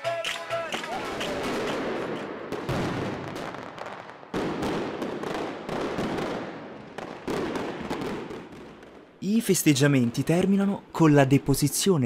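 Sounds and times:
loud fireworks bangs: 0.0 - 9.2
fireworks crackling: 0.0 - 10.7.

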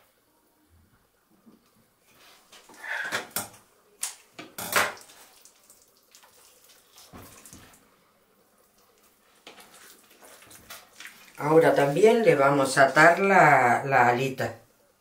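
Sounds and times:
wet squelches of raw poultry: 5.0 - 8.0, 8.6 - 11.9.

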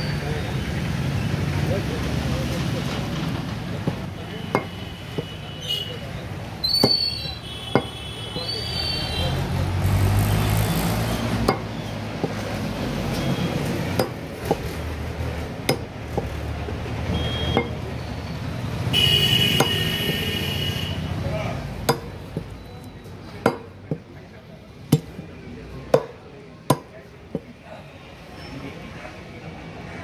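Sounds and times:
cleaver striking on wooden block: 3.8 - 5.4, 6.6 - 8.0, 11.4 - 12.6, 13.8 - 14.8, 15.6 - 16.4, 17.5 - 17.8, 19.5 - 20.4, 21.8 - 22.6, 23.4 - 24.1, 24.9 - 25.2, 25.9 - 27.5.

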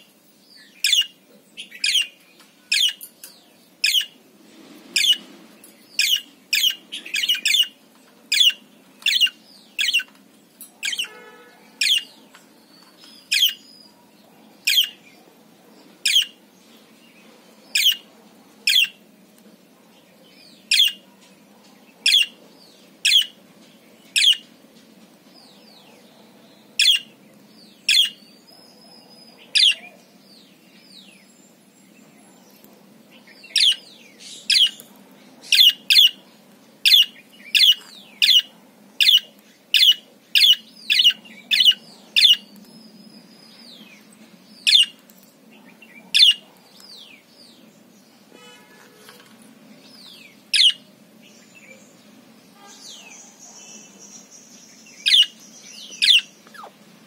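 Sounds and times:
parakeet chirping: 0.8 - 2.1, 2.7 - 3.0, 3.8 - 4.2, 5.0 - 5.2, 5.9 - 10.1, 10.8 - 11.2, 11.8 - 12.1, 13.2 - 13.7, 14.6 - 15.0, 16.0 - 16.4, 17.7 - 18.0, 18.6 - 19.0, 20.7 - 21.0, 22.0 - 22.4, 23.0 - 23.4, 24.2 - 24.4, 26.8 - 27.1, 27.9 - 28.2, 29.5 - 29.8, 33.5 - 33.9, 34.5 - 34.8, 35.5 - 36.2, 36.8 - 42.5, 44.6 - 45.0, 46.1 - 46.4, 50.0 - 50.9, 55.0 - 56.8
buzzy bird call: 4.9 - 5.3.

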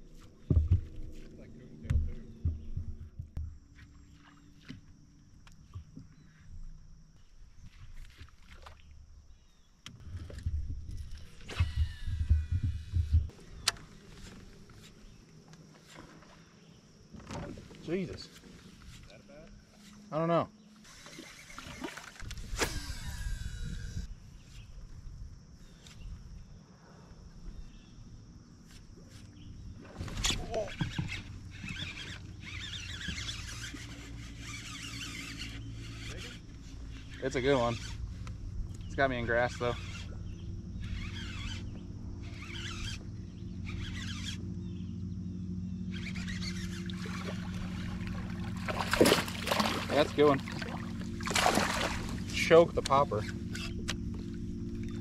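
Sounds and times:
low wind rumble: 0.0 - 3.7, 10.0 - 15.2, 35.6 - 55.0
steady low hum: 0.0 - 7.8, 8.9 - 15.5, 30.6 - 55.0
reel spool whirring: 9.9 - 15.1, 20.7 - 24.1, 30.0 - 55.0.

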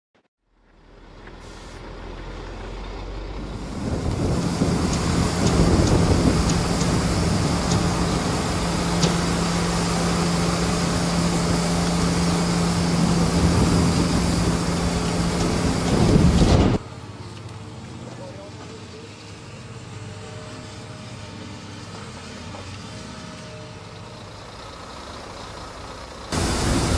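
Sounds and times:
diesel engine humming: 0.5 - 26.9
dense noisy background: 3.4 - 24.4.

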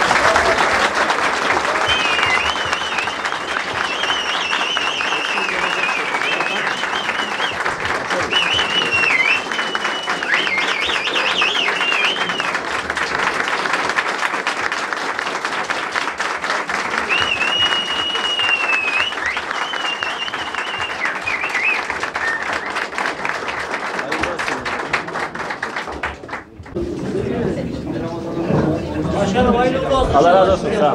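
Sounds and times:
crowd applauding: 0.0 - 27.4
high wavering whistles: 17.1 - 22.8.

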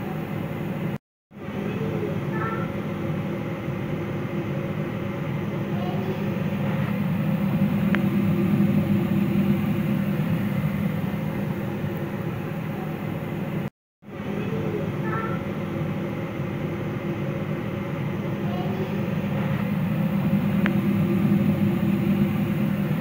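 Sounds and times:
steady low rumble: 6.3 - 12.7, 19.0 - 23.0.

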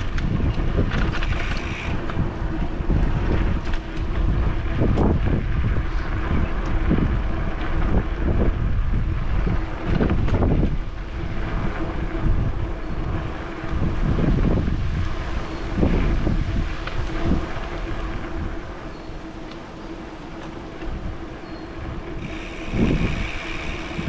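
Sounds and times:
wind buffeting microphone: 0.0 - 24.0
faint steady hum: 15.2 - 24.0.

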